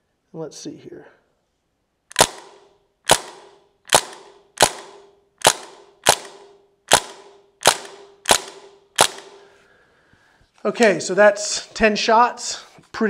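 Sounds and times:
air rifle shots: 2.1 - 9.5.

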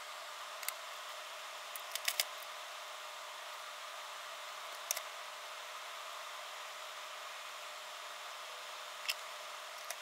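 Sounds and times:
small sharp clicks of handling: 1.7 - 2.4, 4.7 - 5.1.

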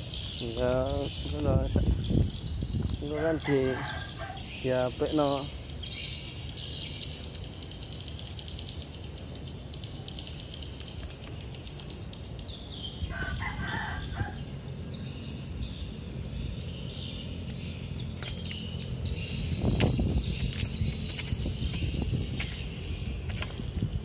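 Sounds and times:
rooster crowing: 3.4 - 4.5, 13.1 - 14.5.

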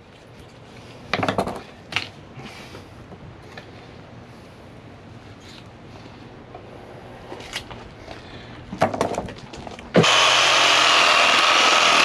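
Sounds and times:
electric power saw cutting bone: 10.0 - 12.0.

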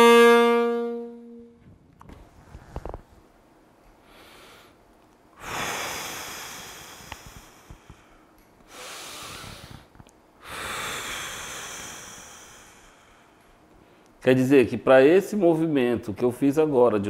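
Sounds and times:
man breathing deeply: 4.0 - 14.2.

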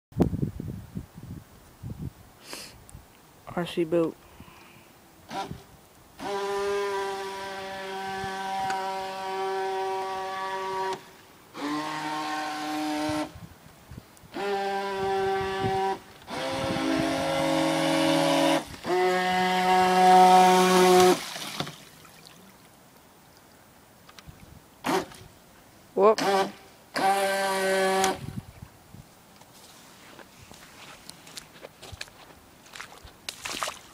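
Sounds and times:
toy boat electric motor whine: 6.2 - 13.4, 14.3 - 21.2, 26.2 - 28.2.

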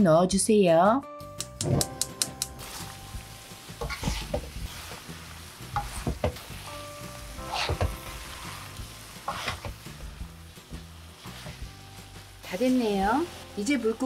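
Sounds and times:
food sizzling in a pan: 1.9 - 14.0
utensil scraping pan: 3.8 - 5.0, 7.4 - 8.2, 9.2 - 9.8, 11.2 - 11.7.

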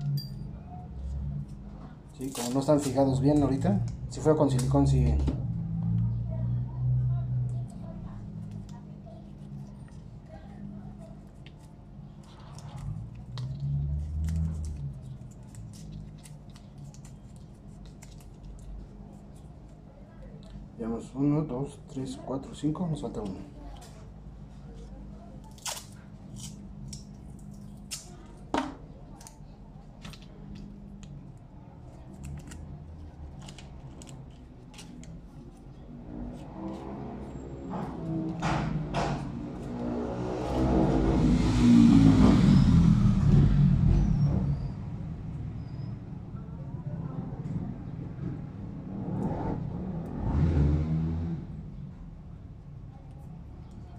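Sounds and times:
tape clicks and crinkles: 2.2 - 4.8, 11.0 - 20.6, 24.7 - 28.5, 29.1 - 35.9.

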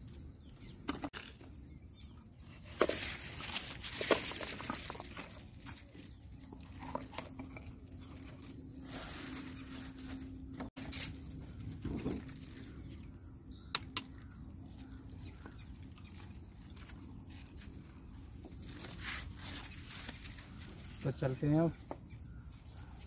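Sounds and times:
sharp clicks: 13.7 - 14.3.

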